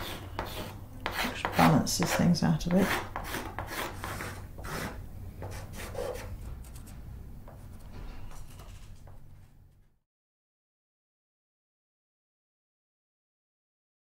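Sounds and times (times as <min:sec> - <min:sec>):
pencil scratching on board: 0:00.0 - 0:07.8.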